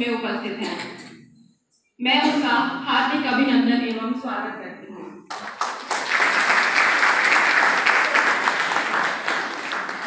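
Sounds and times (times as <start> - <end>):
audience applauding: 5.3 - 10.0.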